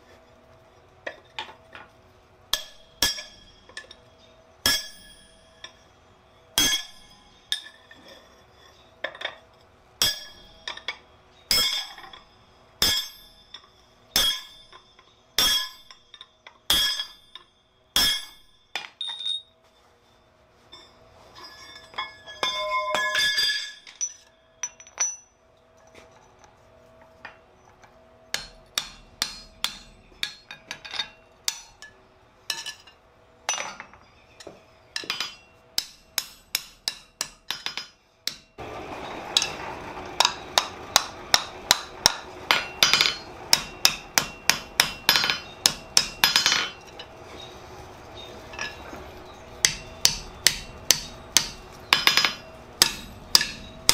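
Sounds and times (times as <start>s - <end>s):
hammer striking metal on anvil: 2.5s - 4.0s, 4.6s - 5.8s, 6.6s - 8.0s, 10.0s - 19.5s, 21.6s - 25.3s, 28.3s - 38.6s, 39.4s - 47.1s, 48.2s - 53.9s
metal clinks: 6.6s - 19.6s, 20.7s - 26.5s.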